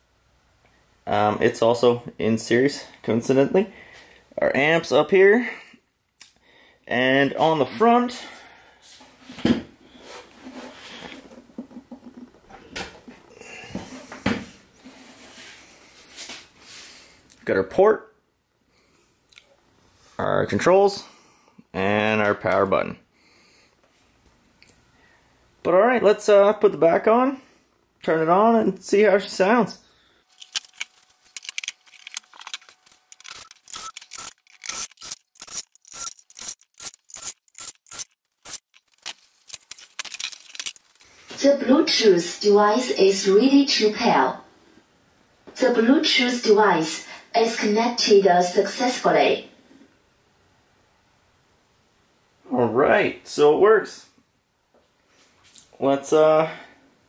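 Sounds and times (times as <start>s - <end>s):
screws scraping into wood: 33.0s - 39.8s.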